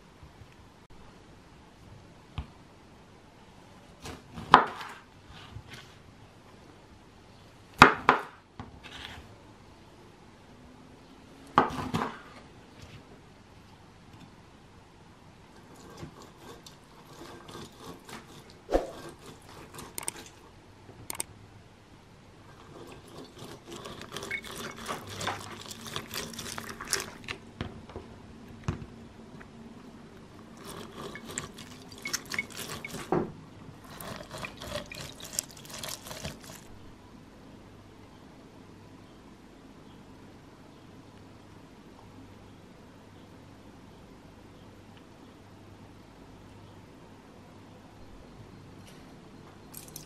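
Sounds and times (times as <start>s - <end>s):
fruit squeezing on citrus reamer: 15.6s - 20.4s, 22.5s - 27.4s, 30.4s - 33.2s, 33.8s - 36.8s
juice dripping: 22.8s - 27.4s, 30.3s - 33.2s, 33.8s - 36.8s, 49.7s - 50.0s.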